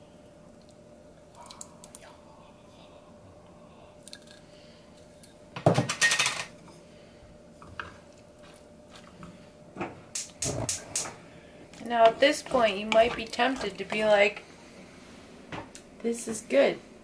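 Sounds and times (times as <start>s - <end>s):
faint steady hum: 0.0s - 17.0s
wooden spatula scraping glass jar: 12.0s - 14.2s.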